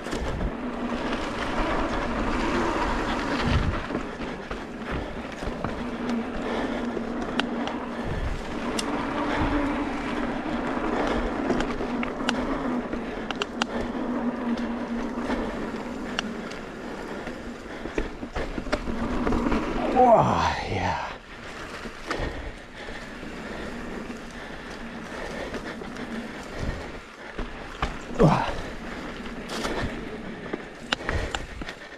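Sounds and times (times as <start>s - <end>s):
bike rattling over rocks: 0.0s - 20.0s
bike tyres on dirt: 0.0s - 31.9s.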